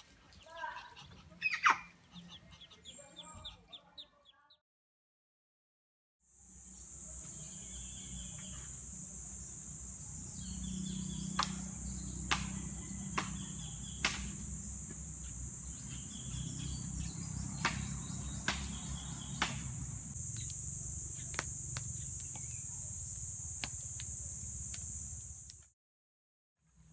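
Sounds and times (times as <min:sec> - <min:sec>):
bird chirps: 0:00.4 - 0:04.6, 0:07.1 - 0:08.9, 0:10.2 - 0:14.2, 0:15.1 - 0:19.5
high insect drone: 0:06.3 - 0:25.7
fire crackling and popping: 0:19.4 - 0:25.6.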